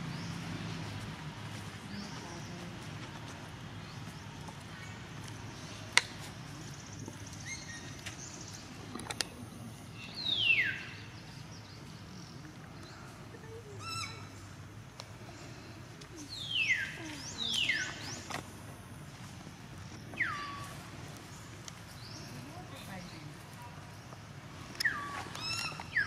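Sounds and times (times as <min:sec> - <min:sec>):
high-pitched animal calls: 0:13.8 - 0:14.4, 0:24.8 - 0:26.0.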